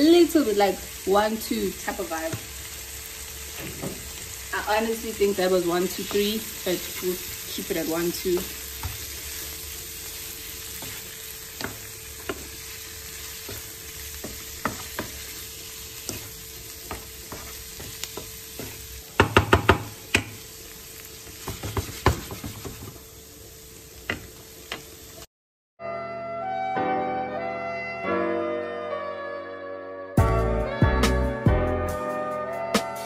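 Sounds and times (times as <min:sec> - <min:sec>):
chicken sizzling in a frying pan: 0:00.0 - 0:25.3
wooden spatula scraping a pan: 0:05.9 - 0:20.4, 0:21.2 - 0:23.1
spatula clacking on pan: 0:13.4 - 0:15.3, 0:16.0 - 0:20.4.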